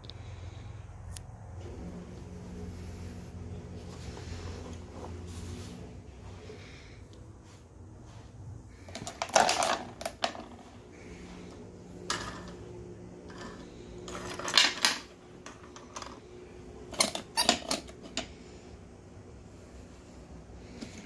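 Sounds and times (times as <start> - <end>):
plastic toys clacking and rattling: 8.9 - 10.7, 13.3 - 16.2, 16.9 - 18.3.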